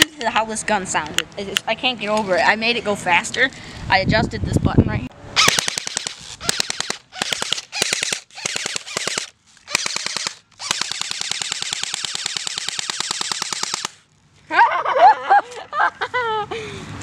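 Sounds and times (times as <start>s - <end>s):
bb gun firing rapid bursts: 5.4s - 14.0s.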